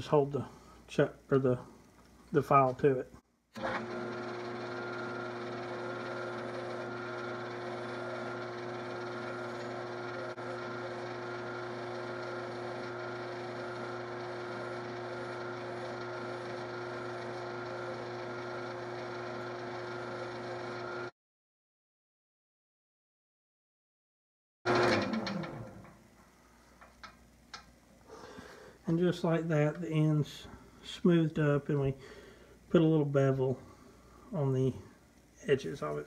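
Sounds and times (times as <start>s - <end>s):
file scraping spinning metal: 3.6s - 21.1s, 24.7s - 26.0s
wood lathe humming and whining: 3.6s - 21.1s, 24.7s - 26.0s.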